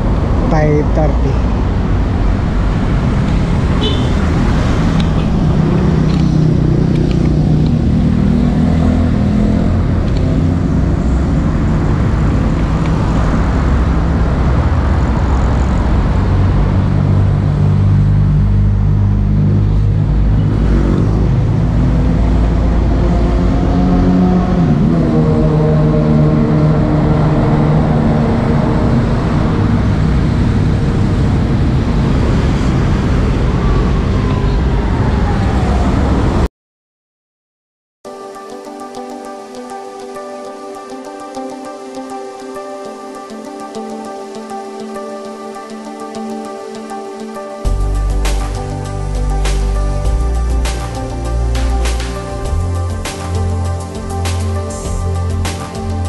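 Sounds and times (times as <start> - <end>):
low traffic rumble: 0.0 - 36.5, 47.7 - 56.0
passing vehicle engines: 0.0 - 36.5.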